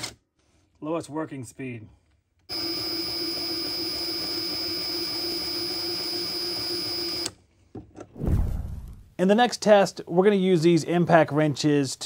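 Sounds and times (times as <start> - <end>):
impact wrench high whine: 2.5 - 7.3.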